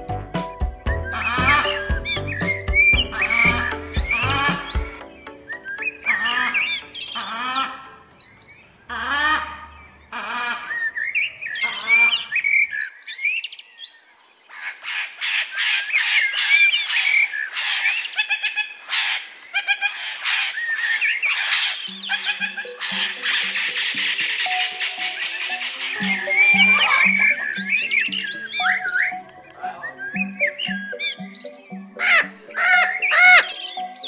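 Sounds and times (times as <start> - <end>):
parrots squawking and chattering: 1.0 - 5.0, 5.6 - 34.0.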